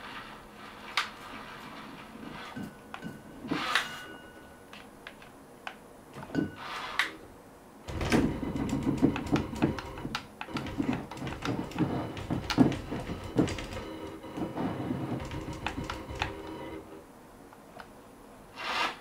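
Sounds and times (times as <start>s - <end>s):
rattling and clicking gears: 7.9s - 16.7s
robot arm motors humming: 7.9s - 17.0s.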